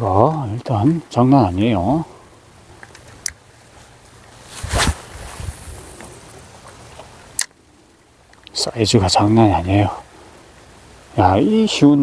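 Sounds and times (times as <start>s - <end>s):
fishing line hiss: 4.3s - 6.5s
fishing rod cast whoosh: 4.4s - 6.2s.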